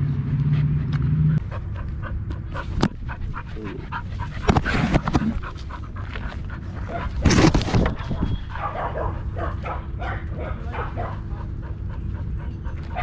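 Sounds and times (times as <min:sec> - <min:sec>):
dog panting: 0:00.5 - 0:07.2, 0:08.0 - 0:13.0
knocks and rustles: 0:07.1 - 0:08.2.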